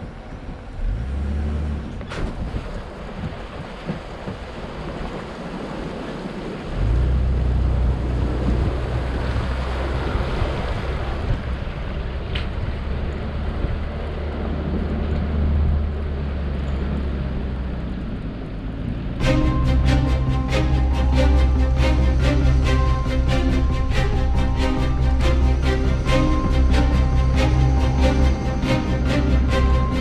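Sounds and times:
wind noise on microphone: 0:00.0 - 0:17.5
off-road vehicle rumble: 0:00.0 - 0:30.0.

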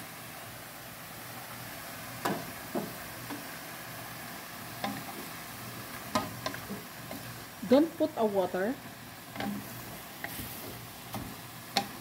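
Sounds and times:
gourd strips sizzling in a pan: 0:00.0 - 0:12.0
wooden spatula knocking on a pan: 0:02.2 - 0:03.0.

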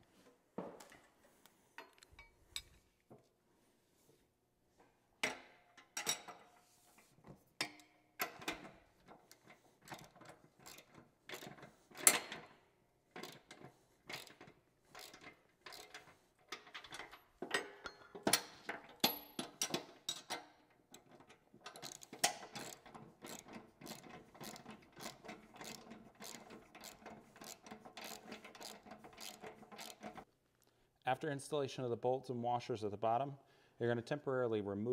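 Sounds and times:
ratchet wrench clicking: 0:14.1 - 0:16.7, 0:21.7 - 0:30.2.

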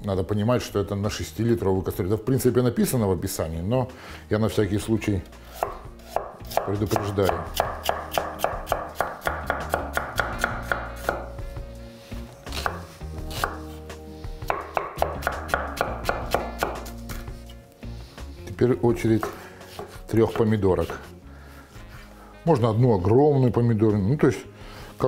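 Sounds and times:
knife chopping on wooden board: 0:05.5 - 0:11.4, 0:12.5 - 0:13.8, 0:14.4 - 0:17.3, 0:19.2 - 0:21.1.

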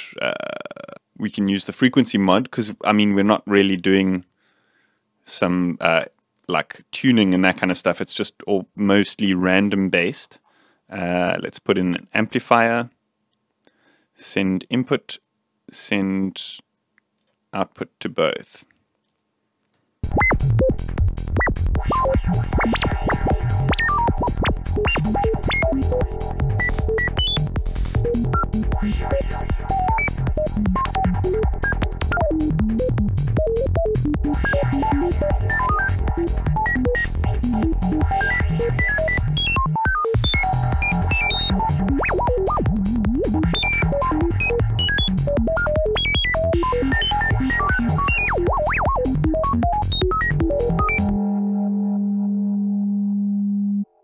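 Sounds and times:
low electronic pulse: 0:20.0 - 0:54.0
synthesizer tone jumping between pitches: 0:20.0 - 0:54.0
steady low tone: 0:21.9 - 0:39.3, 0:50.7 - 0:54.0.

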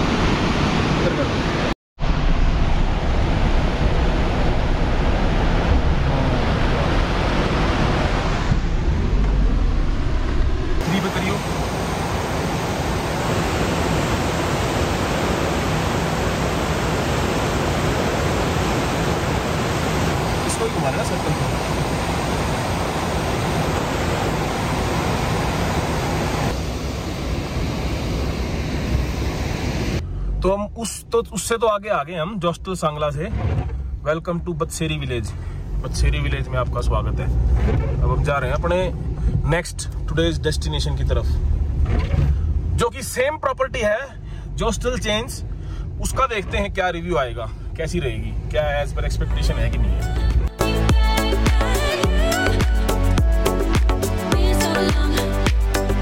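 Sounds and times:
river roaring: 0:00.0 - 0:30.0.

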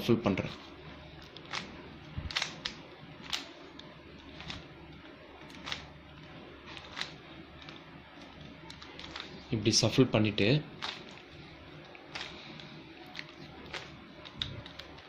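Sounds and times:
puzzle cube layers clicking: 0:01.3 - 0:04.7.

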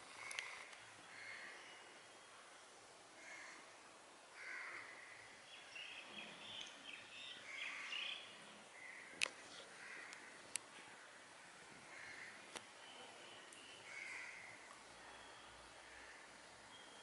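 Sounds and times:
birds chirping: 0:05.2 - 0:09.1, 0:12.0 - 0:17.0.

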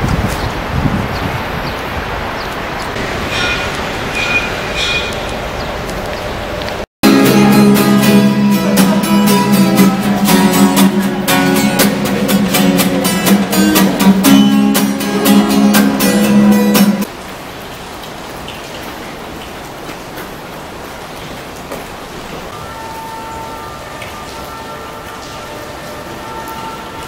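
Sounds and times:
rain falling: 0:00.0 - 0:27.0
acoustic guitar strumming: 0:07.0 - 0:17.1.

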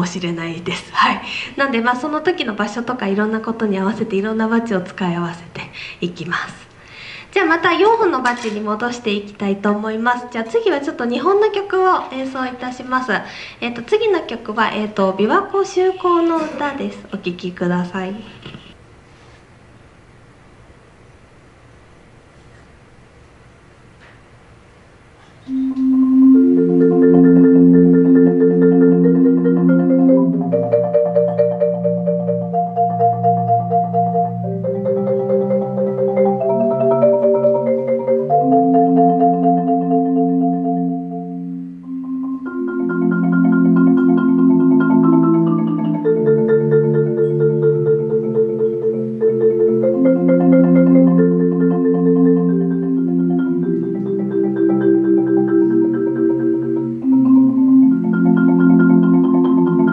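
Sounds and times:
marimba rolled notes and chords: 0:25.5 - 0:59.9.

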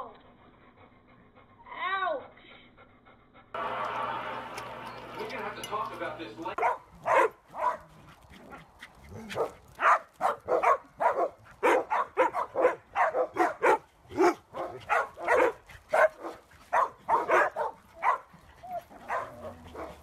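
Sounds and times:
dogs barking: 0:06.5 - 0:20.0.

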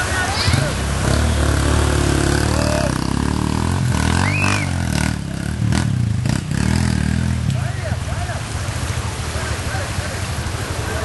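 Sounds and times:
water rushing and splashing: 0:00.0 - 0:11.0
vehicle engine revving: 0:00.4 - 0:07.7.

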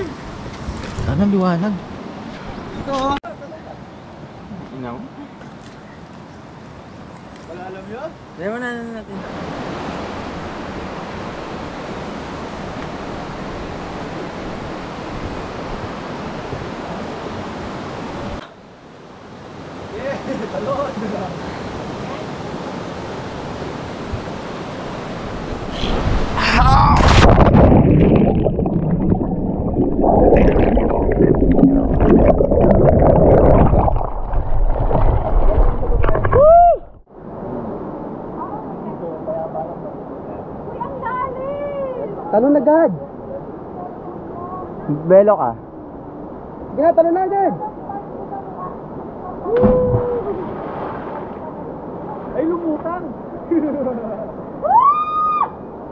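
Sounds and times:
water splash: 0:25.7 - 0:36.6, 0:49.5 - 0:51.5
underwater rumbling and gurgling: 0:26.8 - 0:37.1.

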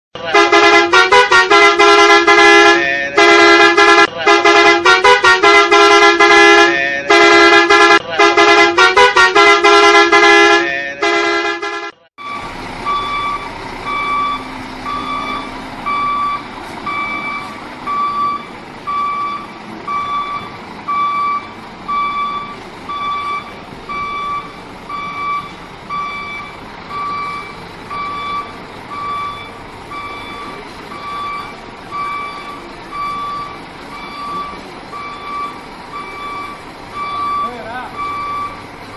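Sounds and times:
musical horn playing a tune: 0:00.3 - 0:12.1
engine running low: 0:12.2 - 0:38.9
reversing alarm beeping: 0:12.2 - 0:38.9.

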